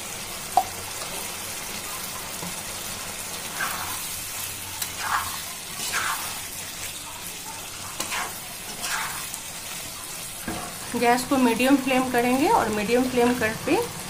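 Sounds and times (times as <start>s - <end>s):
food sizzling in a frying pan: 0.0s - 14.0s
spatula scraping and stirring: 2.3s - 12.3s.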